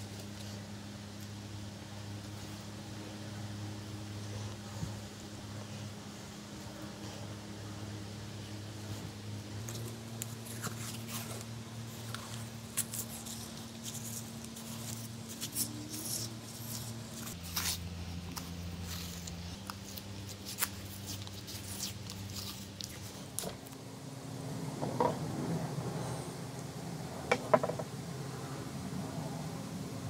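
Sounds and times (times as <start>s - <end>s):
steady low hum: 0.0s - 30.0s
masking tape crinkling and clicking: 9.6s - 23.8s.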